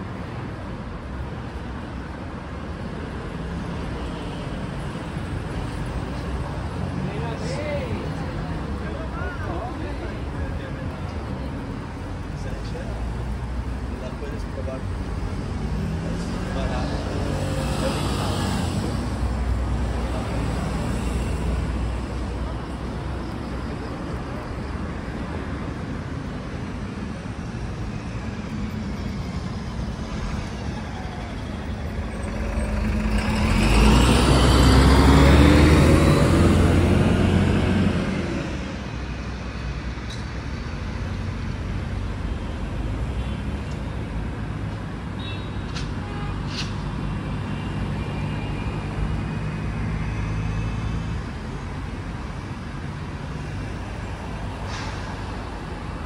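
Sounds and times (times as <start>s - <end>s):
city traffic hum: 0.0s - 56.0s
vehicle passing close by: 32.0s - 38.9s.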